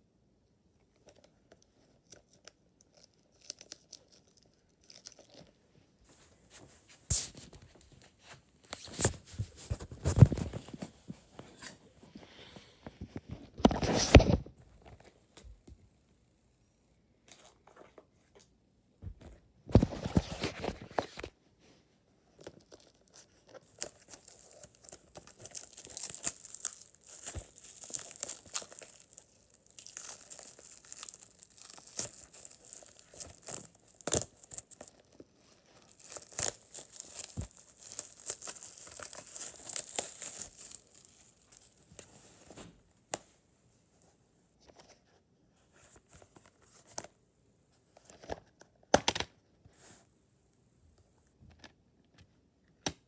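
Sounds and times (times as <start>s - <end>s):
plastic shrink wrap crinkling: 22.4s - 42.8s.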